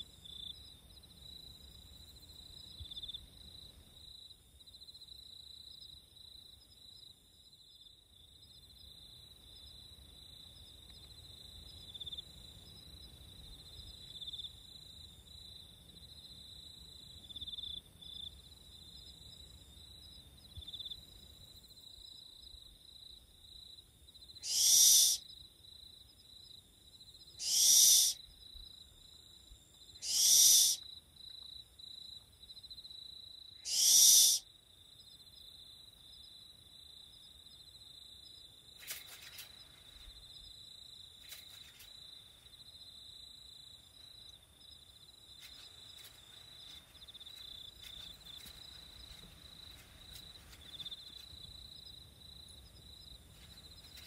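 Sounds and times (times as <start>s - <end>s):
high insect trill: 0.2s - 54.0s
owl screeching: 24.4s - 25.2s, 27.4s - 28.2s, 30.0s - 30.8s, 33.6s - 34.4s.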